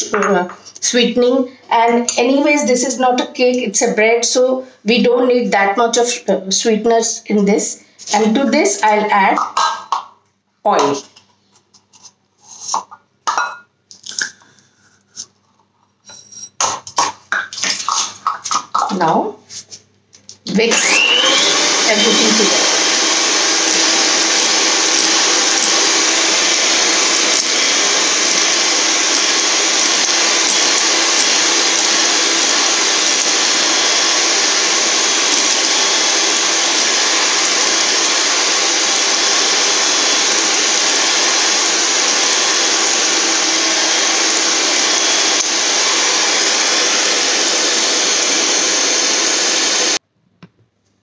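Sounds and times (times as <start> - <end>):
electric hand mixer whisking: 20.6 - 50.0.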